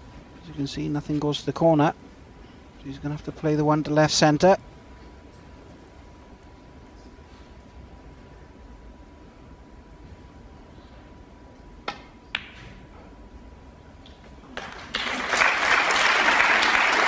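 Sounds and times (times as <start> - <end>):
audience applause: 14.5 - 17.0.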